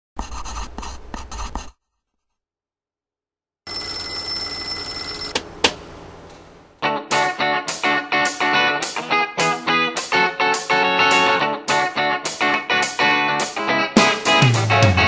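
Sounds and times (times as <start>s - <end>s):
pen scratching on paper: 0.2s - 2.4s
alarm clock ringing: 3.7s - 5.4s.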